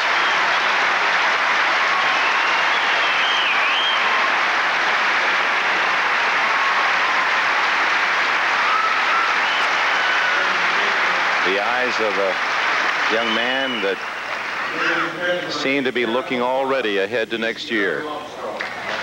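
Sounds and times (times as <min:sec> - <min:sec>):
whistles: 0:00.0 - 0:00.9, 0:01.7 - 0:04.4, 0:08.5 - 0:11.0, 0:13.0 - 0:14.9
crowd clapping: 0:00.0 - 0:16.0, 0:18.5 - 0:19.0.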